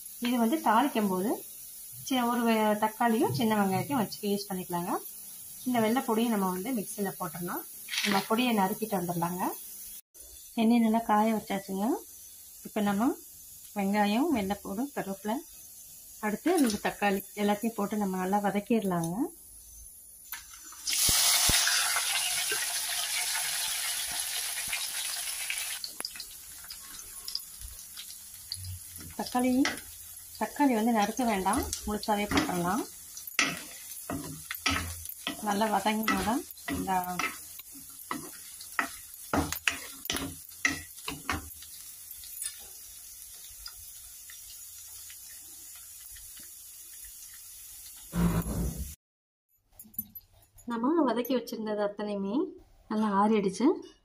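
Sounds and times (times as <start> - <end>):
onions sizzling in hot oil: 0.0 - 48.6
wooden spatula stirring in pan: 26.7 - 48.1.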